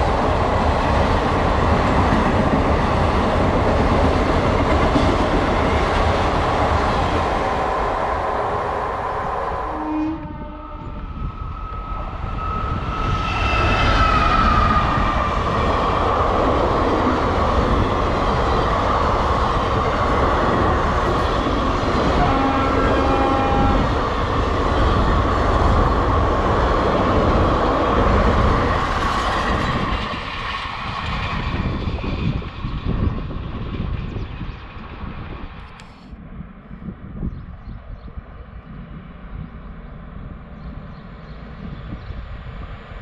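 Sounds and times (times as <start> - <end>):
train wheels rumbling on rails: 0.0 - 43.0.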